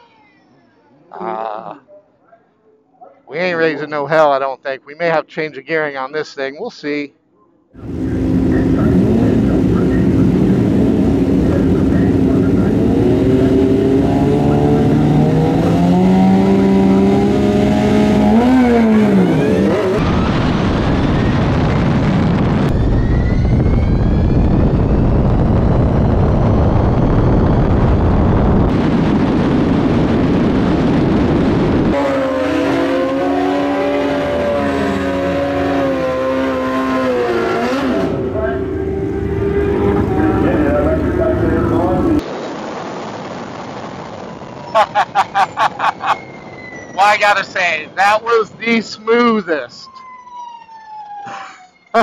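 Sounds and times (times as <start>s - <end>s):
motorcycle engine revving: 7.8s - 20.1s, 28.7s - 42.2s
loud wind roar: 7.8s - 42.2s.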